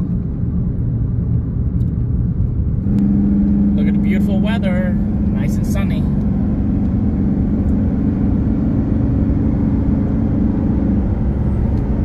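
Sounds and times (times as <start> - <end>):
car interior road and engine noise: 0.0 - 12.0.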